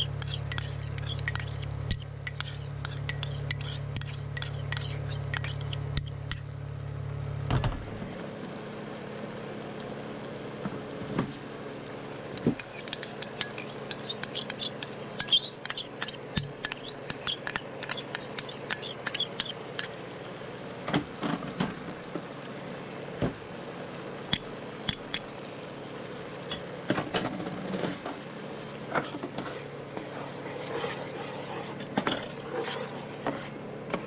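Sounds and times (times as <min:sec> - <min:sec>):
bowls and utensils clinking: 0:00.0 - 0:06.5, 0:12.4 - 0:20.0.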